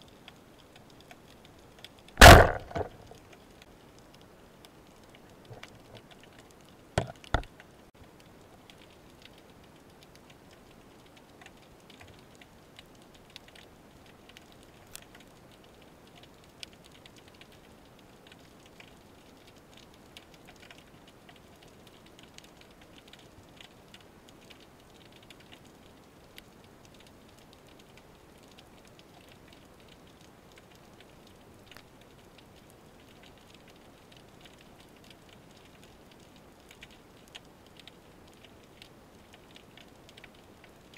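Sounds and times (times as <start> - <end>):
faint underwater crackling clicks: 0.0 - 40.9
sharp knocks: 2.2 - 3.0.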